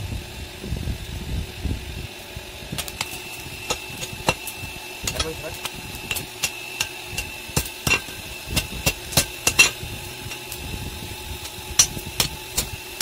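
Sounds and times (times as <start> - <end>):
hammer striking metal on anvil: 2.8 - 10.6, 11.4 - 12.8.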